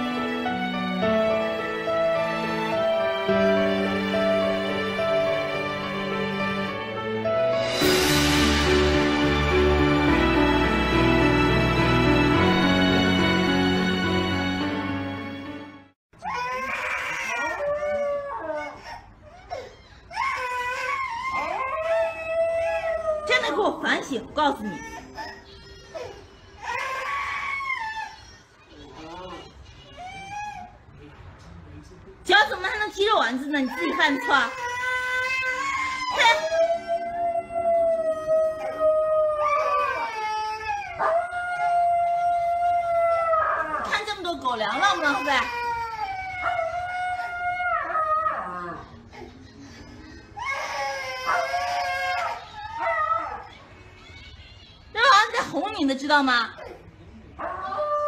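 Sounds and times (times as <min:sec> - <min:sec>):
dog howling: 0:33.8 - 0:44.0, 0:44.8 - 0:49.4, 0:50.4 - 0:53.6.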